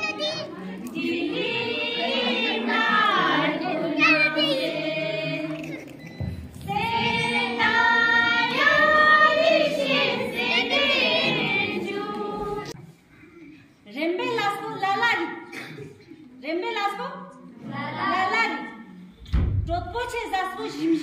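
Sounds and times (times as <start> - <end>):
group of people singing: 0.0 - 13.0.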